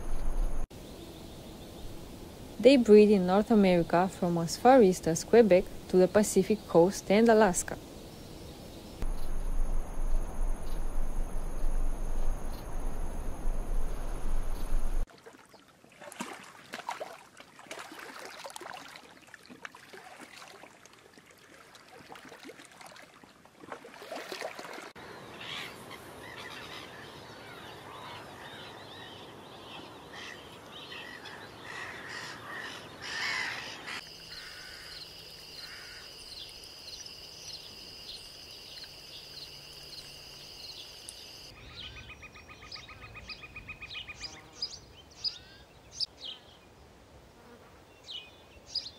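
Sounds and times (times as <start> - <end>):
high insect trill: 7.6 - 15.0, 34.0 - 41.5
steady high whine: 9.0 - 15.0.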